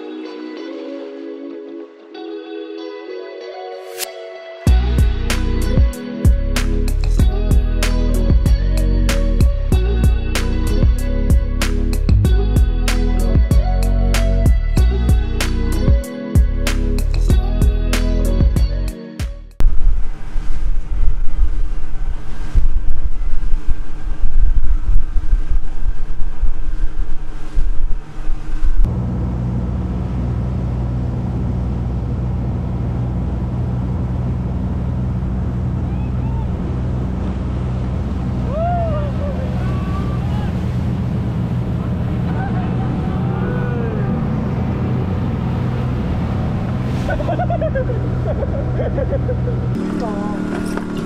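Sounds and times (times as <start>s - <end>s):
boat engine hum: 4.7s - 18.9s, 19.6s - 51.0s
low rumble surging: 4.7s - 18.9s, 19.6s - 51.0s
water and wind rushing: 19.6s - 51.0s
voices talking: 41.8s - 44.4s, 49.8s - 51.0s.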